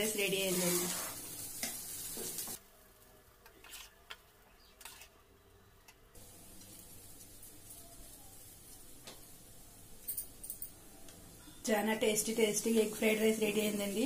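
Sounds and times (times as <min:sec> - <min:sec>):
rice sizzling in a pan: 0:00.0 - 0:03.9, 0:06.2 - 0:14.0.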